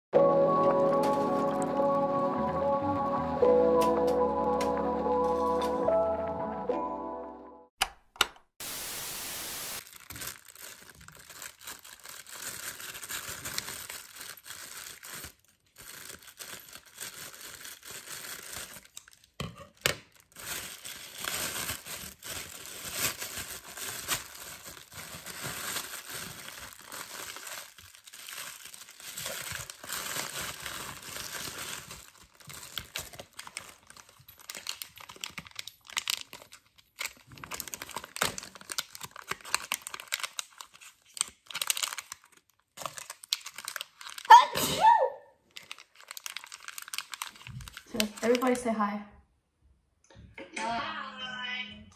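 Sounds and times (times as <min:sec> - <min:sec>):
plastic bags crinkling: 0:00.7 - 0:01.9, 0:09.8 - 0:44.4, 0:45.4 - 0:48.7
steady hiss: 0:08.6 - 0:09.8
plastic mailer ripping: 0:09.7 - 0:44.4, 0:45.5 - 0:48.5.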